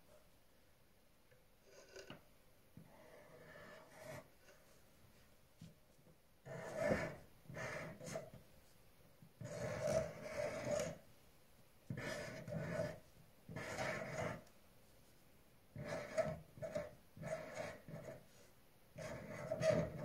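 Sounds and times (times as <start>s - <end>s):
felt-tip pen drawing on paper: 2.9s - 4.6s, 6.4s - 8.3s, 9.4s - 11.0s, 11.9s - 14.5s, 15.8s - 20.0s.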